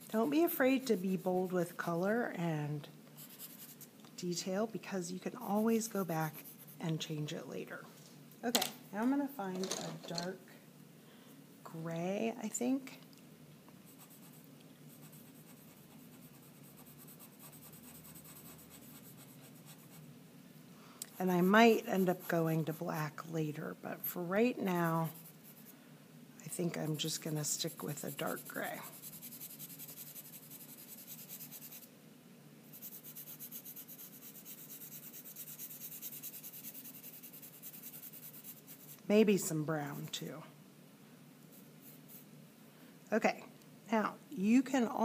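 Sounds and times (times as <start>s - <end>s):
chalk pencil scratching on paper: 3.2s - 3.9s, 5.2s - 7.0s, 13.9s - 20.1s, 21.1s - 23.2s, 24.0s - 25.7s, 26.7s - 31.9s, 32.7s - 39.1s, 41.5s - 42.3s.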